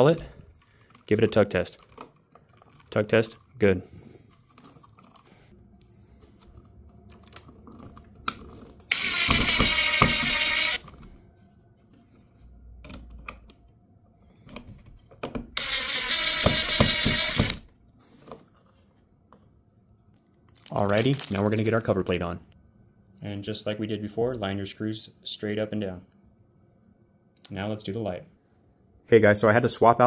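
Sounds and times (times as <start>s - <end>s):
impact driver driving screws: 8.9s - 10.8s, 15.6s - 17.6s.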